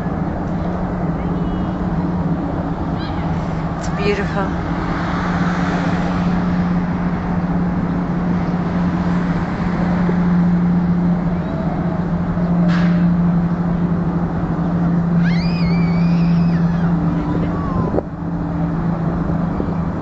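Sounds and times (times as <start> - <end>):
motorboat engine droning: 0.0 - 20.0
short high rising call: 15.1 - 17.2
wind on microphone: 16.3 - 20.0.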